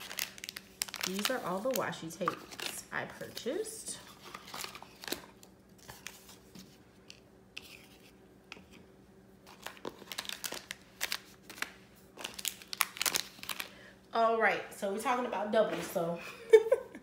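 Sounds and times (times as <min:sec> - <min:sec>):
plastic packages crinkling: 0:00.0 - 0:06.5, 0:09.4 - 0:13.9.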